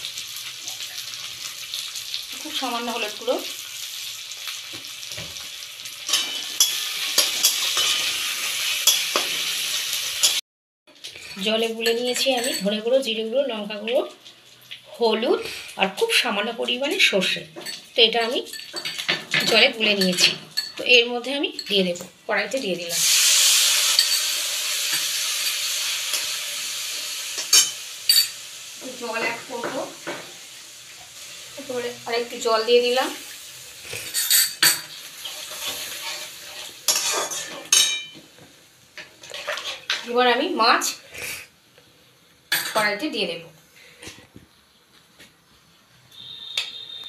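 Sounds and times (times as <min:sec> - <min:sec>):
food sizzling in hot oil: 0:00.0 - 0:41.5
metal spatula scraping pan: 0:06.1 - 0:10.4, 0:34.0 - 0:38.1, 0:39.2 - 0:40.2
metal spatula clinking on pan: 0:11.8 - 0:12.7, 0:36.9 - 0:38.2.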